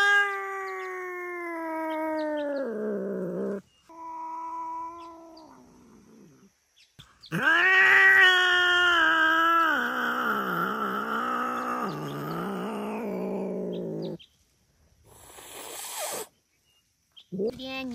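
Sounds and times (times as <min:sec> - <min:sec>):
cat yowling: 0:00.0 - 0:06.3, 0:07.3 - 0:14.1.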